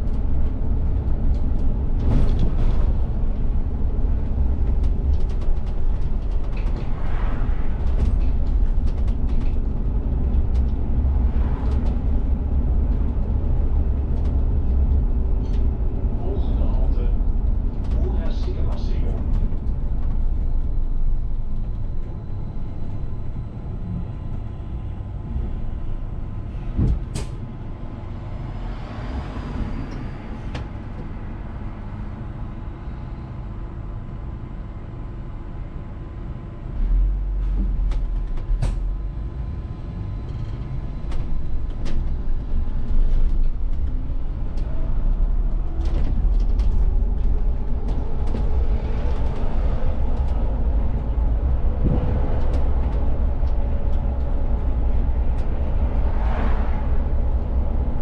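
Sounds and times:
bus drivetrain and road rumble: 0.0 - 58.0
rising engine whine: 19.3 - 58.0.

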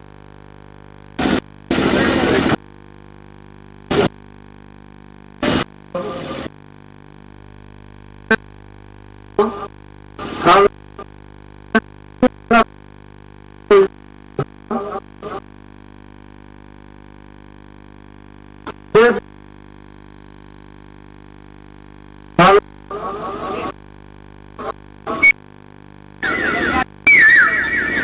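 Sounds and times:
electrical mains hum: 0.0 - 28.0
voice cutting in and out: 19.0 - 19.2, 22.4 - 23.7, 26.2 - 28.0.

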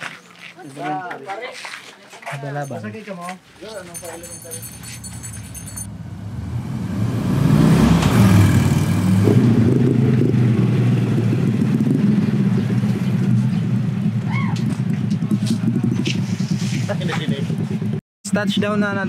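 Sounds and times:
vehicle engine pulsing rumble: 4.0 - 18.0.

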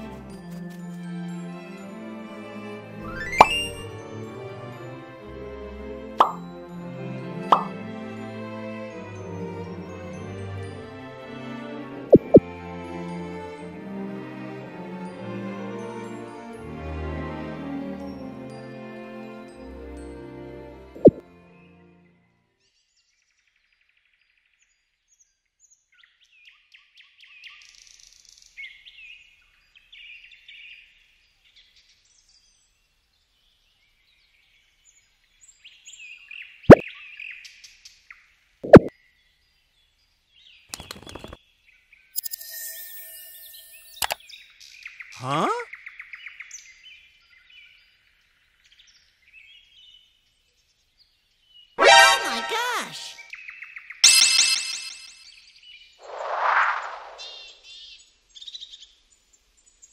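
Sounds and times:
birds chirping and whistling: 3.1 - 3.9, 56.0 - 57.6
small birds chirping: 38.0 - 51.8, 56.8 - 59.9
short rising glide: 56.0 - 57.5.

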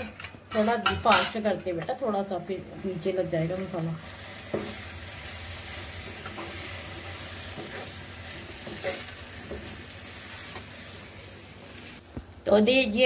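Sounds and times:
sauce sizzling in a pan: 2.9 - 12.0
spoon scraping a pan: 5.7 - 11.0.

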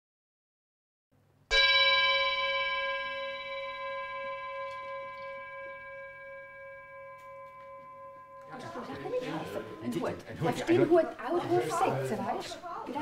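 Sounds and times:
singing bowl ringing: 1.5 - 10.8.

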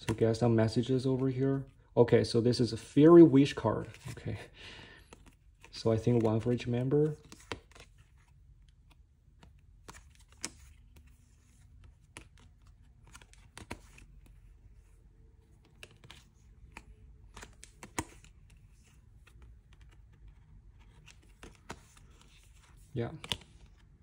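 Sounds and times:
paper cards clicking and tapping: 5.0 - 23.9.

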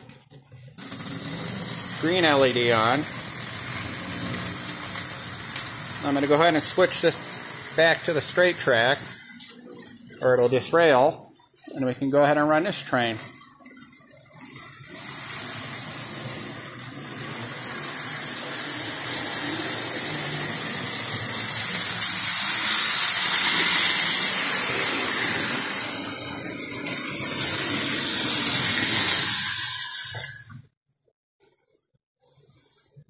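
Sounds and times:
model train motor and wheels whirring: 0.7 - 11.1, 12.1 - 30.6.

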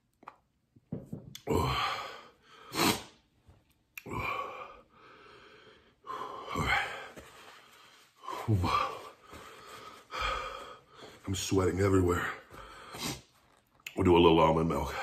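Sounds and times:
man gasping breaths: 1.5 - 3.1, 4.0 - 11.3, 12.4 - 13.3.

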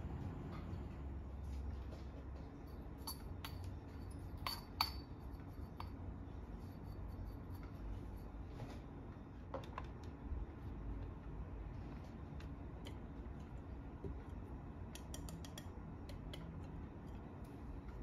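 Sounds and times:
glass and metal clinking: 2.6 - 6.0.

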